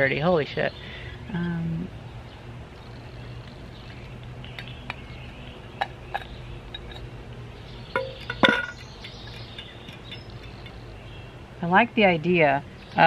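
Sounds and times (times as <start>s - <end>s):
metallic knocks ringing: 7.9s - 10.8s
metal parts clinking: 8.0s - 10.7s.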